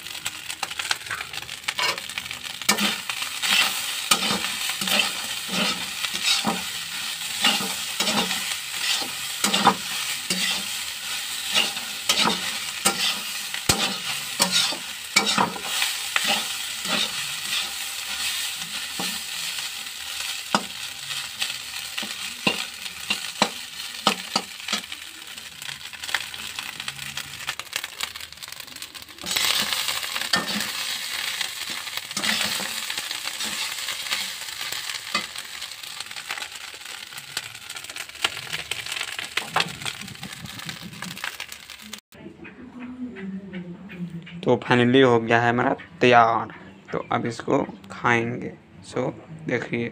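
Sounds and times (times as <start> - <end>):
rice sizzling in oil: 0.0 - 42.0
spatula scraping metal wok: 0.5 - 41.8.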